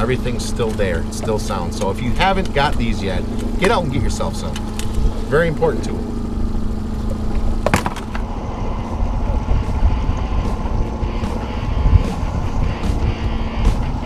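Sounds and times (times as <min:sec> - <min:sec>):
boat motor running: 0:00.0 - 0:14.0
wind rumble on microphone: 0:06.4 - 0:14.0
sharp knocks: 0:07.6 - 0:08.3.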